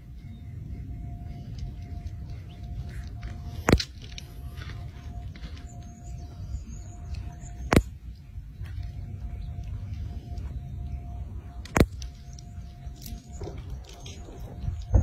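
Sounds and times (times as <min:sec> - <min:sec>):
eagle squeaky calls: 0:00.0 - 0:15.0
faint steady hum: 0:00.0 - 0:15.0
low steady rumble: 0:00.0 - 0:15.0
sharp clicks: 0:07.1 - 0:08.0, 0:11.6 - 0:15.0.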